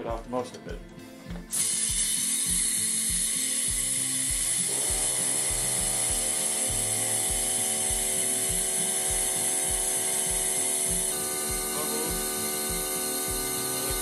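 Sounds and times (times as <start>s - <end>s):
background music with a beat: 0.0s - 14.0s
compressed air hissing: 1.4s - 14.0s.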